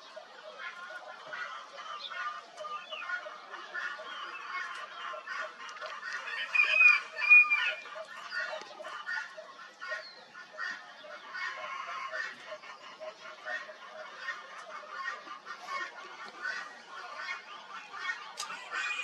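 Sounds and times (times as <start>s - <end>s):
birds chattering chorus: 0.0s - 19.0s
loud whistled bird notes: 6.4s - 7.8s.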